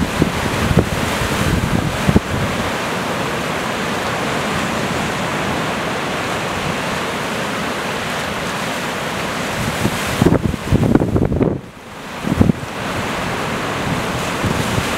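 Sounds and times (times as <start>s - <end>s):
wind buffeting microphone: 0.0s - 2.8s, 9.5s - 14.9s
sea waves breaking: 0.0s - 14.9s.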